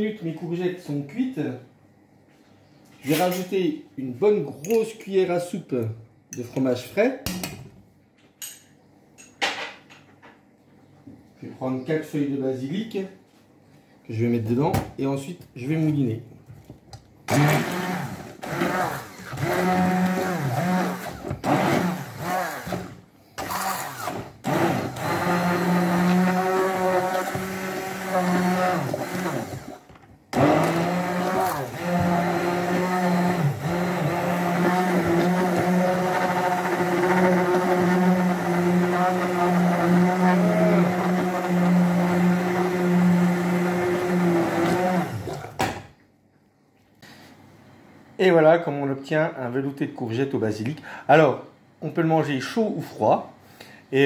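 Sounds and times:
immersion blender running: 0:17.3 - 0:45.6.

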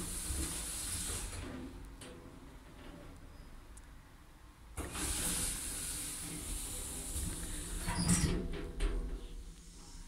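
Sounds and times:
elevator doors sliding closed: 0:04.8 - 0:09.3.

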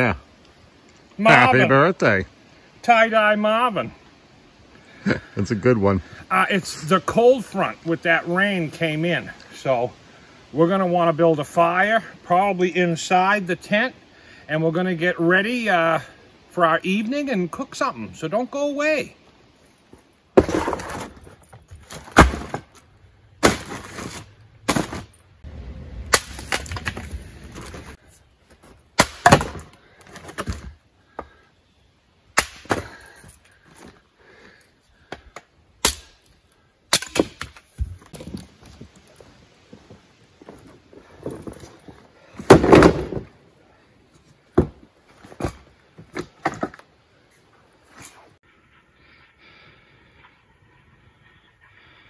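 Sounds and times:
firewood cracking: 0:20.4 - 0:22.8, 0:26.0 - 0:28.0, 0:42.3 - 0:43.4
rustling: 0:26.2 - 0:28.9.

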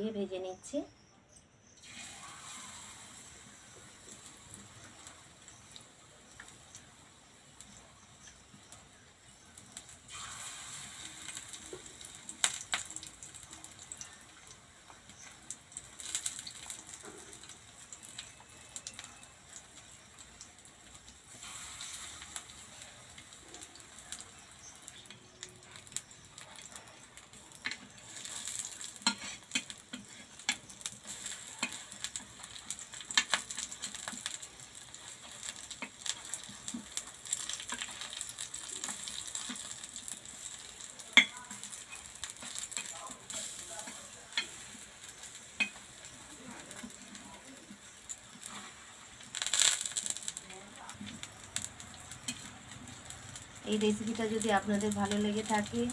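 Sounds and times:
battered leaves sizzling in oil: 0:00.0 - 0:55.9.

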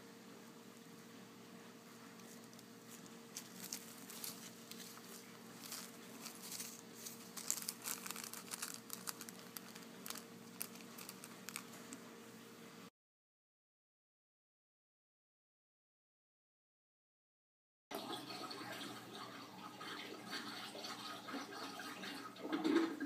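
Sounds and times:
faint steady hum: 0:00.0 - 0:12.9
plastic bag crinkling: 0:02.0 - 0:12.0.

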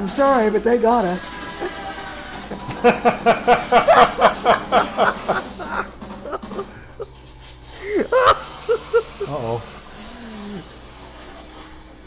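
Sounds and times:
person laughing heartily: 0:02.4 - 0:09.4.

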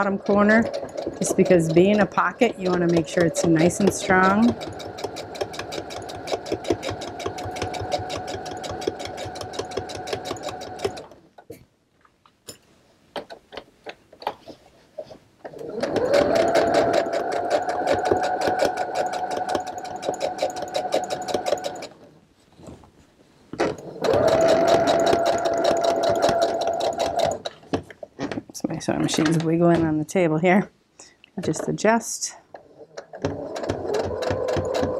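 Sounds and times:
sewing machine stitching: 0:00.0 - 0:11.2, 0:15.5 - 0:22.1, 0:23.6 - 0:27.6, 0:32.6 - 0:34.9.

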